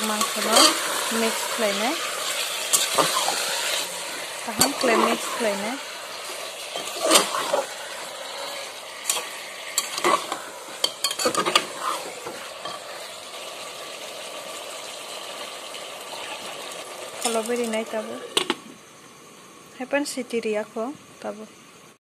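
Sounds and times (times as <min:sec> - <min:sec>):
food sizzling: 0:00.0 - 0:21.9
metal spoon scraping a pot: 0:00.1 - 0:01.4, 0:06.3 - 0:12.9.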